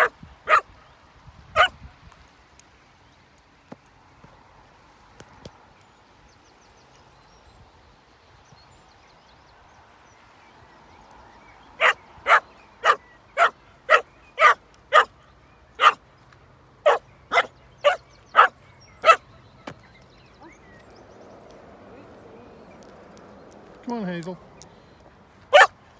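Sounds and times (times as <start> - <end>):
dog barking: 0.0 - 0.7, 1.6 - 1.8, 11.8 - 15.1, 15.8 - 16.0, 16.8 - 19.3, 25.5 - 25.8.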